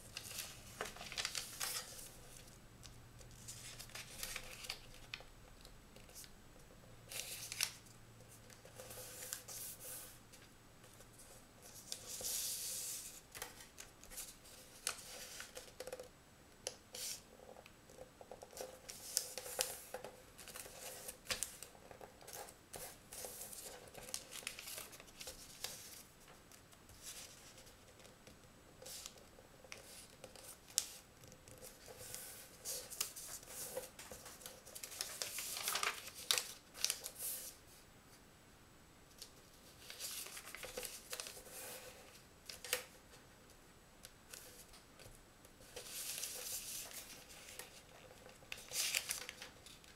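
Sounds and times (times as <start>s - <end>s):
paper rustling and sliding: 0.1s - 2.5s, 31.6s - 37.6s, 45.6s - 49.8s.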